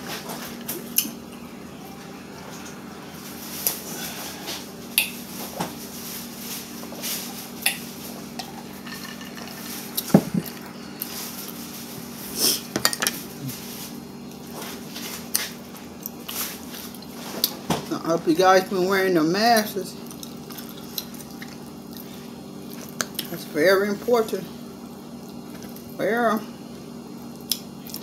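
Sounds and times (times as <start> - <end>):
steady low hum: 0.0 - 28.0
cup set down: 10.1 - 10.5.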